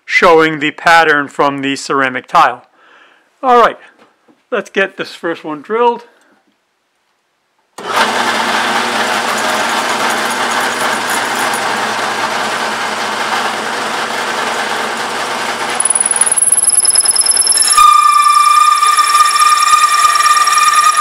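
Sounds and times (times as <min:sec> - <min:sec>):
drill press motor hum: 0:07.8 - 0:17.7
high thin whine: 0:15.8 - 0:21.0.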